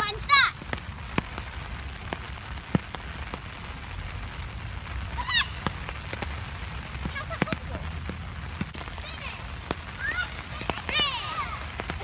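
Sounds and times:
rain hiss: 0:00.0 - 0:12.0
sharp ticks of raindrops: 0:00.0 - 0:12.0
child squealing: 0:05.1 - 0:05.6.

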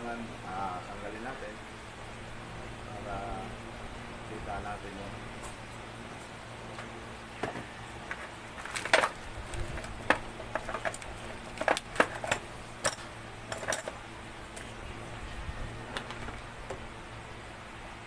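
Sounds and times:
metal tools clinking: 0:08.1 - 0:14.0.

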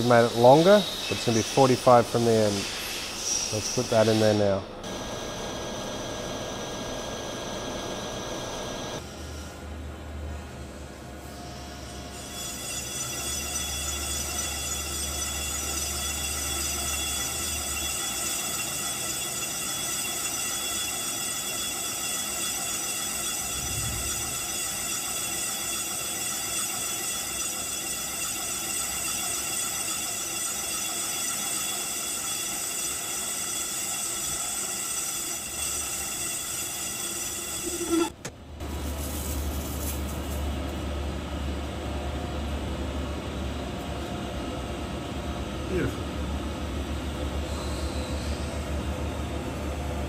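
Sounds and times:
lathe tool cutting bronze squealing: 0:00.0 - 0:09.0, 0:11.5 - 0:38.1.

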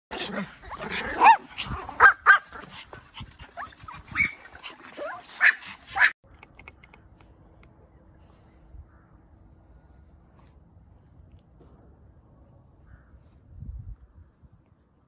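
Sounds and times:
small dogs yipping and whining: 0:00.3 - 0:06.2.

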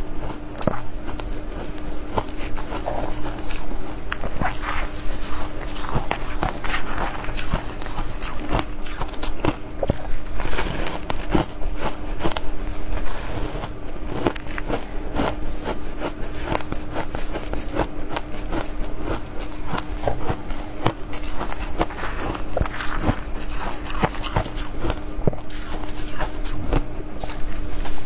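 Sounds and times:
ice crunching while chewed: 0:00.0 - 0:28.0.

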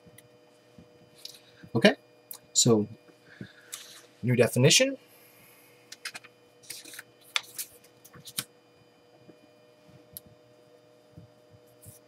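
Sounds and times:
paper rustling: 0:06.6 - 0:08.4.

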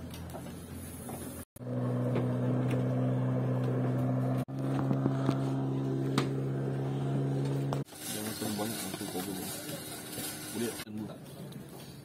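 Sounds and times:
engine humming steadily: 0:00.0 - 0:11.6.

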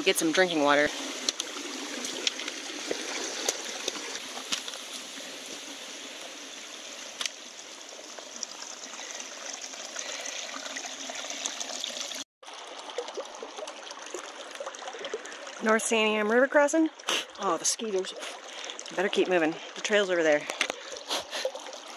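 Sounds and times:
shallow stream over rocks: 0:00.0 - 0:21.9
water trickling over rocks: 0:00.0 - 0:21.9
water drips: 0:06.5 - 0:21.9.

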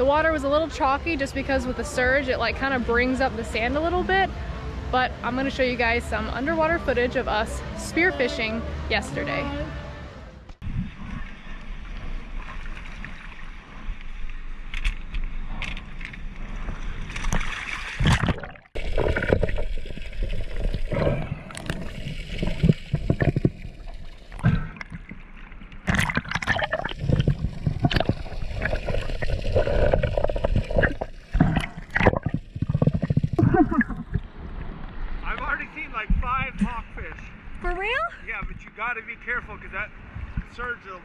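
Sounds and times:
water sloshing and gurgling: 0:10.6 - 0:36.8, 0:40.0 - 0:40.6
sharp splashes: 0:16.9 - 0:35.1.

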